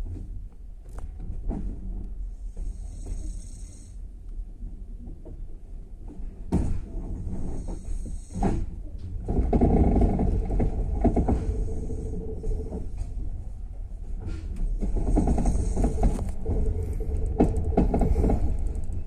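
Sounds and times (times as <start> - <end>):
train rolling on track: 0.0 - 19.0
wheels knocking: 9.2 - 13.0, 14.3 - 19.0.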